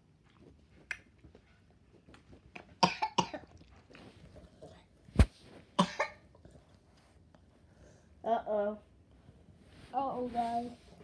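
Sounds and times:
child coughing: 0:02.8 - 0:03.5, 0:05.8 - 0:06.2.

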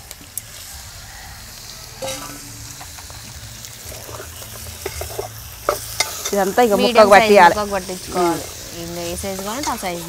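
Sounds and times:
chicken sizzling in hot oil: 0:00.0 - 0:10.0
spoon scraping and clinking pot: 0:02.0 - 0:02.8, 0:03.9 - 0:07.2.

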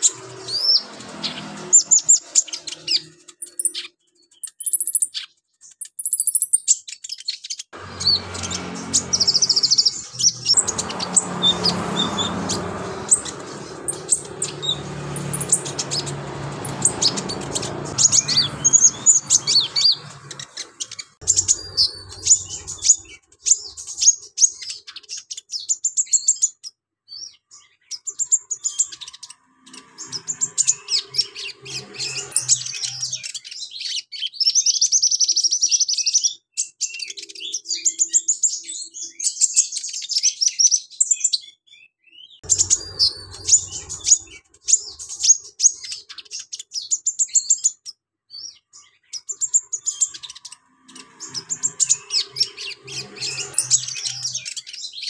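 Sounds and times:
bird singing high chirps: 0:00.0 - 0:55.0
buzzing bird trill: 0:07.8 - 0:23.1.

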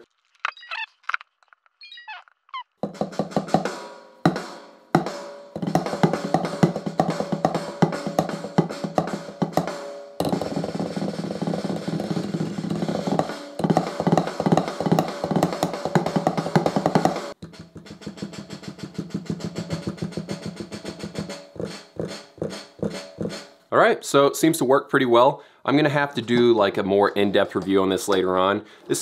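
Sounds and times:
electronic drum samples: 0:02.8 - 0:23.6, 0:26.2 - 0:28.3.

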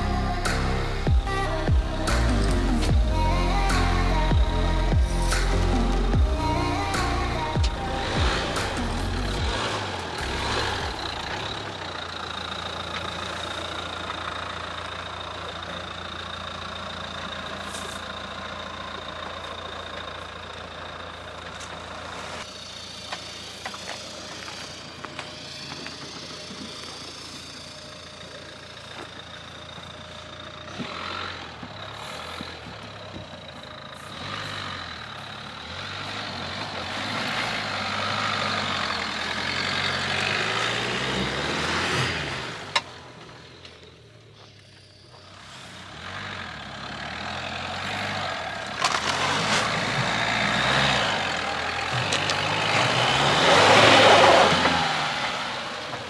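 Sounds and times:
car engine under load: 0:00.0 - 0:56.0.

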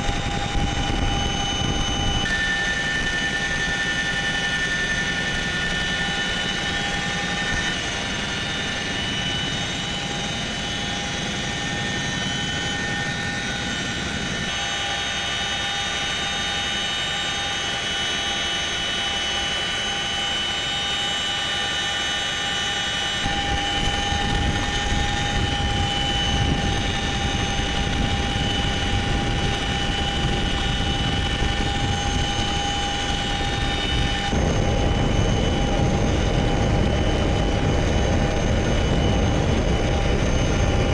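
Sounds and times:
helicopter turbine whine: 0:00.0 - 0:40.9
heavy low rumble: 0:23.3 - 0:40.9.

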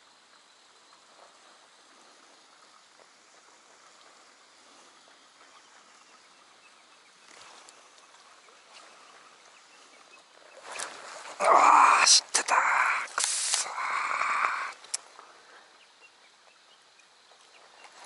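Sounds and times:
outdoor hiss on open water: 0:00.0 - 0:18.0
faint click: 0:13.0 - 0:13.8, 0:14.4 - 0:15.2.

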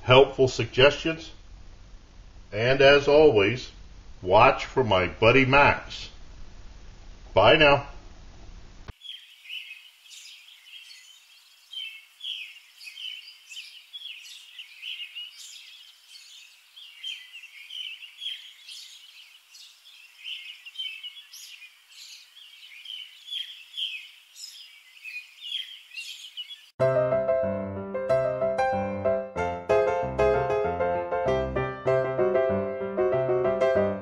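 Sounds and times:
faint steady hiss: 0:00.0 - 0:26.7
small birds chirping: 0:08.9 - 0:26.8.

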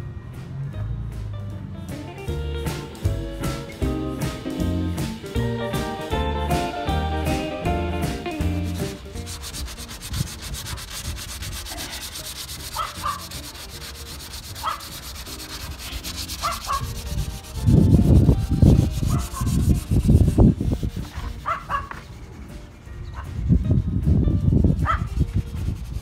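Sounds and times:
sandpaper rubbing on metal: 0:08.0 - 0:26.0.

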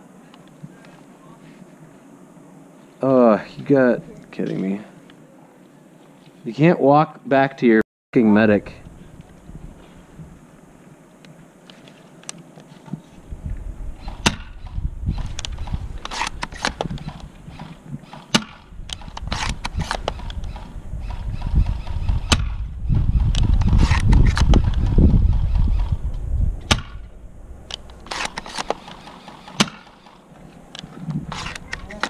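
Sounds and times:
low rumble on microphone: 0:13.2 - 0:16.1, 0:18.6 - 0:28.2
airsoft gun shots: 0:16.6 - 0:21.2, 0:22.3 - 0:22.6, 0:26.7 - 0:27.1, 0:28.0 - 0:30.0.

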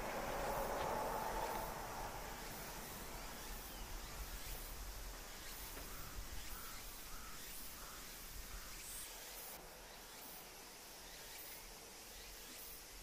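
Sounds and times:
steady background hiss: 0:00.0 - 0:13.0
crow cawing: 0:05.8 - 0:08.7.

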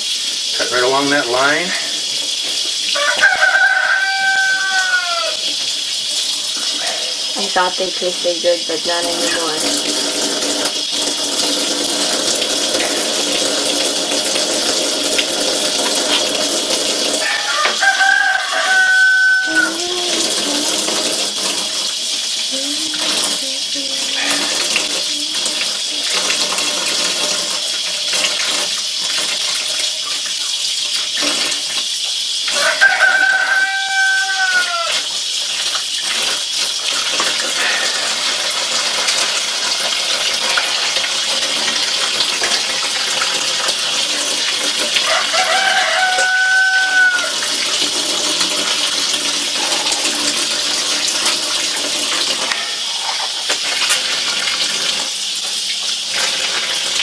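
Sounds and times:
tap water running into sink: 0:00.0 - 0:57.0
rooster crowing: 0:02.9 - 0:05.6, 0:17.2 - 0:20.6, 0:32.5 - 0:35.2, 0:37.5 - 0:38.4, 0:45.0 - 0:47.8, 0:49.4 - 0:50.8.

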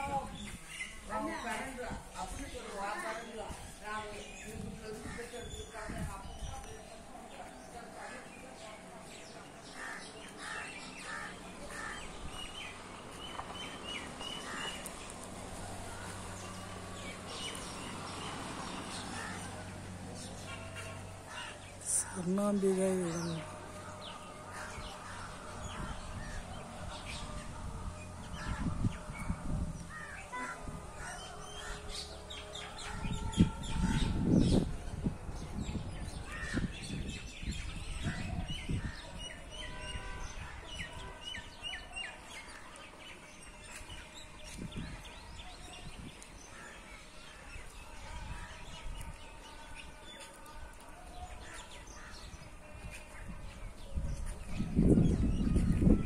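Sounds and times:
birds chirping: 0:00.0 - 0:27.4
crows cawing: 0:09.7 - 0:12.1.

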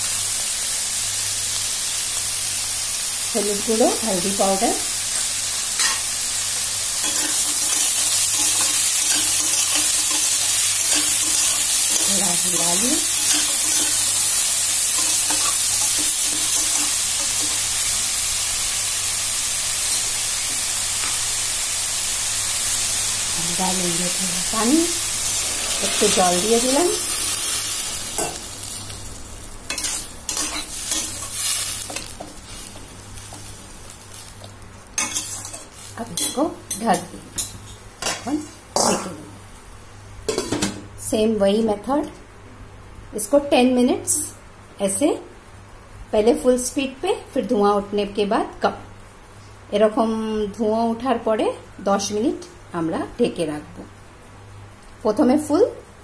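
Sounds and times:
vegetables sizzling in oil: 0:00.0 - 0:42.0
metal spatula scraping pan: 0:25.2 - 0:28.5.

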